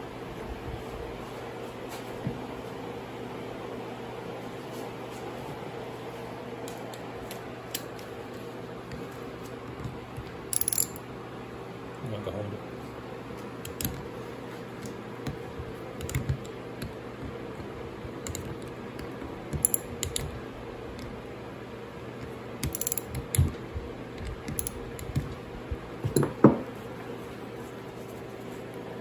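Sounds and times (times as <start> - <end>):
hand ratchet clicking: 10.5 - 11.0, 18.1 - 20.4, 22.6 - 25.4
metal clinks of bolts and tools: 10.5 - 11.1, 22.6 - 23.5.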